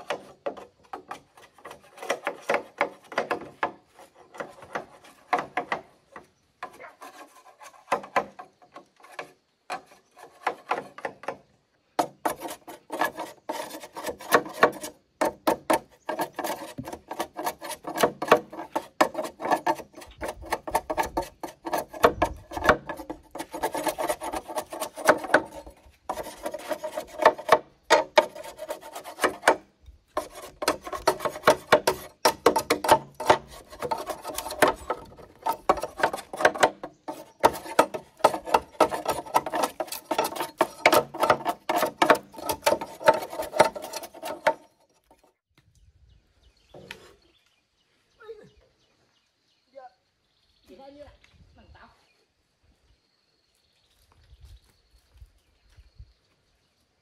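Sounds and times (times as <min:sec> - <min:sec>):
hand tool rasping wood: 0:00.0 - 0:45.4.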